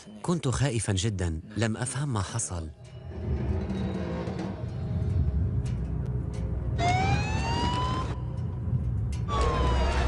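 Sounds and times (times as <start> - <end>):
steady low rumble: 2.8 - 10.0
emergency vehicle siren wailing: 6.8 - 8.4, 9.3 - 10.0.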